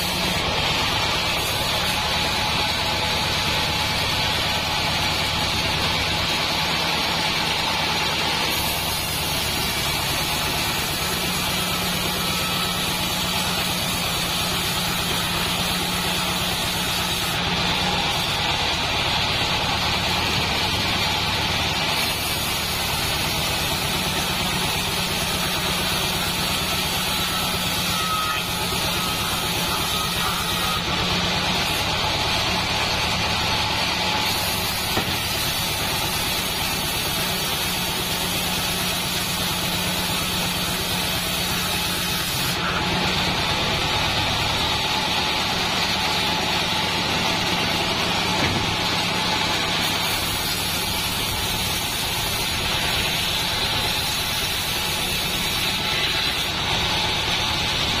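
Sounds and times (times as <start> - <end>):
band saw blade ripping log: 34.2 - 42.8.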